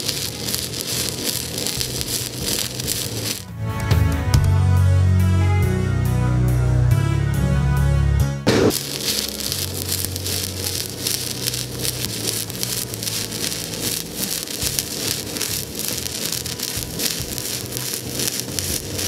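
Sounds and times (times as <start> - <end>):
welding arc crackling and sizzling: 0.0 - 3.5, 8.5 - 19.0.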